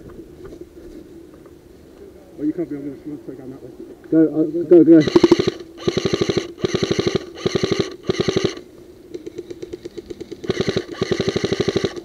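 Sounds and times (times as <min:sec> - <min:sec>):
airsoft rifle bursts: 0:05.0 - 0:08.6, 0:09.3 - 0:12.0
gearbox motor whine: 0:05.0 - 0:08.6, 0:10.4 - 0:12.0.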